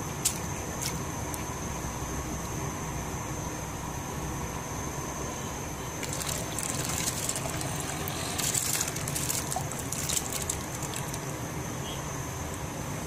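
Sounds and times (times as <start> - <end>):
lentils splashing into boiling water: 6.0 - 11.4
water boiling: 6.0 - 11.6.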